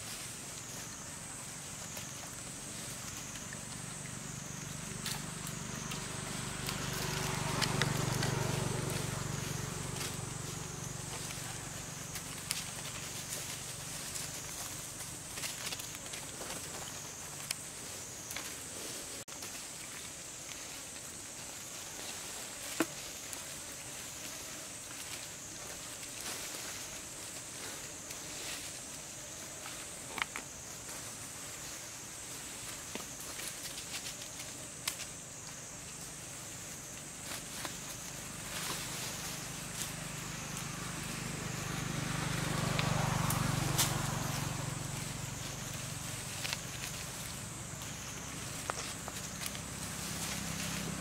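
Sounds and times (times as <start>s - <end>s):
high-pitched hiss: 0.0s - 51.0s
low engine hum: 0.2s - 18.2s, 35.2s - 51.0s.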